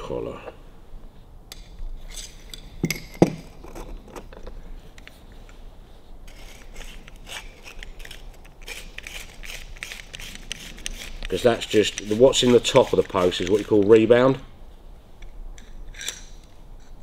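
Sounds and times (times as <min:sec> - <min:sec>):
metal rubbing and scraping: 0:06.0 - 0:13.8.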